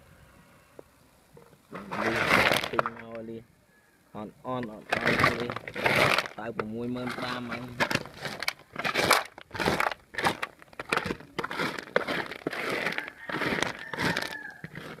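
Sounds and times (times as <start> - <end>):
clam shells clattering: 4.8 - 15.0.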